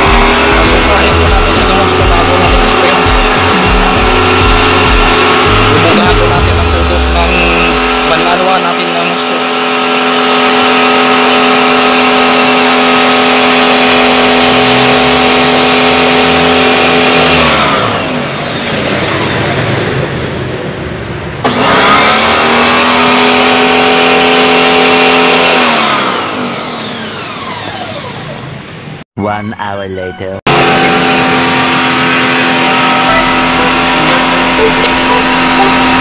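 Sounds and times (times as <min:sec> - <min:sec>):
pressure washer motor running: 0:00.0 - 0:29.0, 0:30.5 - 0:36.0.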